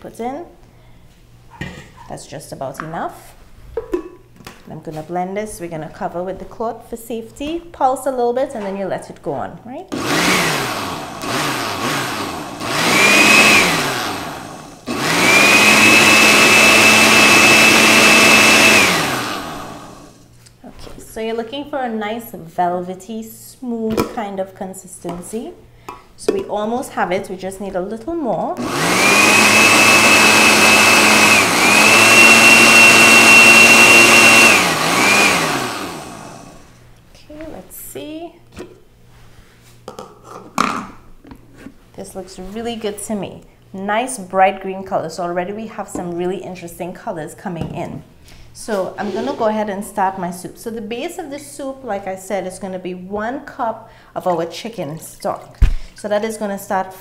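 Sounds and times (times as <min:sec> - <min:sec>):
blender motor running: 0:09.9 - 0:20.3, 0:28.6 - 0:36.7.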